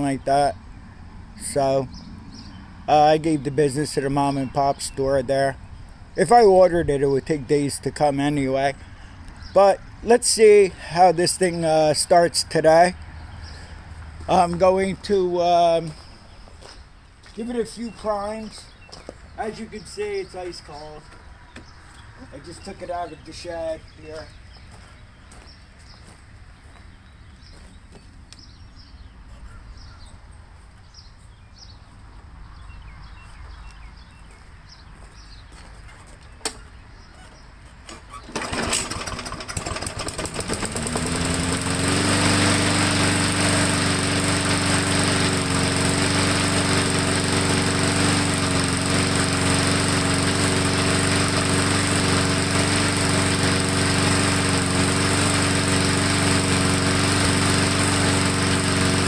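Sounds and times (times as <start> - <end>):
lawnmower engine starting and running: 0.0 - 5.5, 6.2 - 16.3, 17.2 - 24.6, 37.3 - 59.0.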